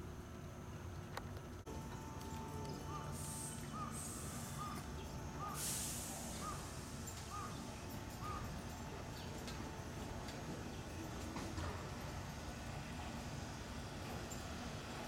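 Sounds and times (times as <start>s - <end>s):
electric train rumbling: 0.0s - 15.0s
crow cawing: 2.9s - 4.8s, 5.4s - 5.6s, 7.3s - 7.6s, 8.2s - 8.5s
short hiss: 3.1s - 4.7s, 5.4s - 7.6s.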